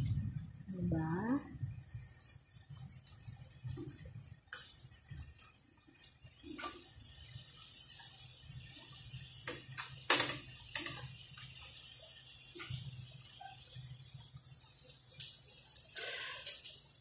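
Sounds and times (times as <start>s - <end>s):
oil sizzling in a pan: 0.0s - 17.0s
sharp popping oil: 9.4s - 11.1s.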